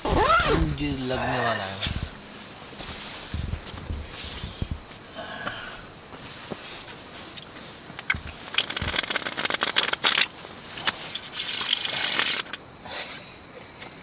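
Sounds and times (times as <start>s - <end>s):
sleeping bag rustling: 0.0s - 12.1s
soft thumps: 2.8s - 6.6s.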